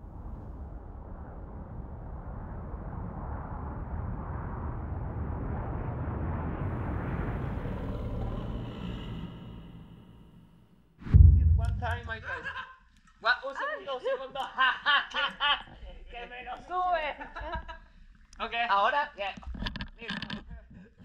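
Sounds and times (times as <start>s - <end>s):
low rumbling noise: 0.0s - 12.6s.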